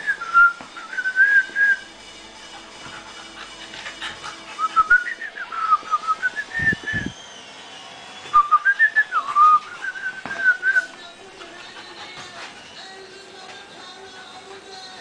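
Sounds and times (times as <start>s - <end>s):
person whistling a tune: 0.0s - 1.9s, 4.6s - 10.9s.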